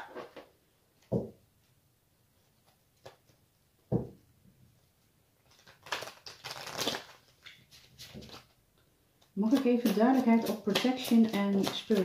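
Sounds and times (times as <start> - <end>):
cards shuffling: 5.4 - 8.5.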